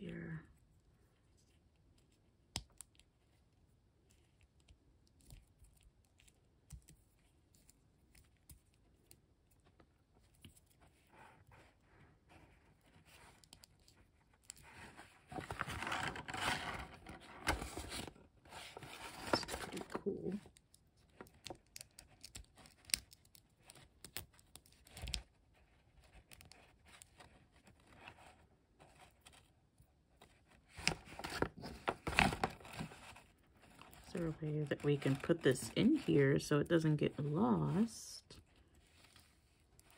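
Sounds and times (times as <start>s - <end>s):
plastic packaging rustling: 14.6s - 20.4s, 30.7s - 36.2s.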